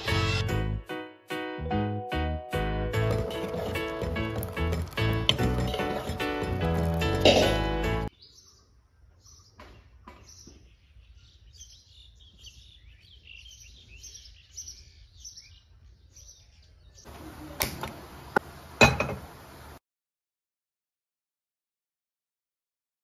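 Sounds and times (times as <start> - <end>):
small birds chirping: 3.3 - 19.8.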